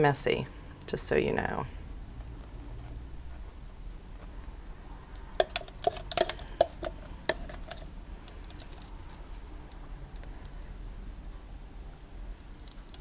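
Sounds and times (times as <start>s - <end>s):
plastic cups clicking: 5.3s - 8.9s.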